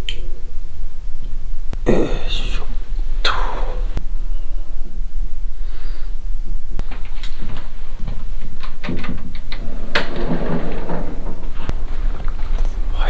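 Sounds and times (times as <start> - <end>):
steady low rumble: 0.0 - 8.6.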